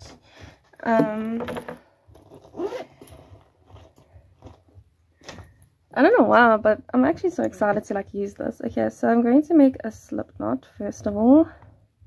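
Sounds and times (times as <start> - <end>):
objects being handled: 0.0 - 5.9.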